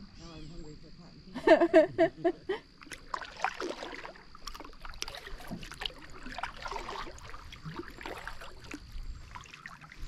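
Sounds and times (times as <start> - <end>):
canoe paddles splashing water: 2.7 - 10.0.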